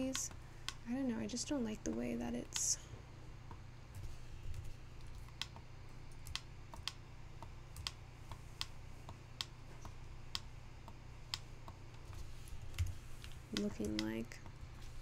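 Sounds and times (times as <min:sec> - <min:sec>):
computer keyboard keys clicking: 0:00.0 - 0:00.8, 0:04.5 - 0:07.0, 0:07.7 - 0:08.7, 0:12.7 - 0:14.2
low steady hum: 0:00.0 - 0:15.0.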